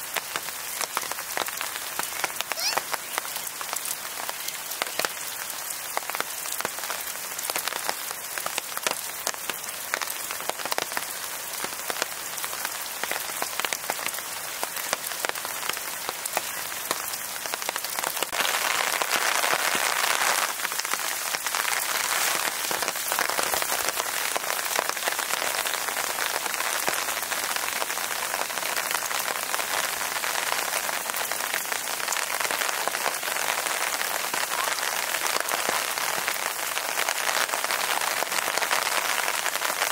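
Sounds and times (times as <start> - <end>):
raindrops ticking close by: 0.0 - 39.9
steady rainfall: 0.0 - 39.9.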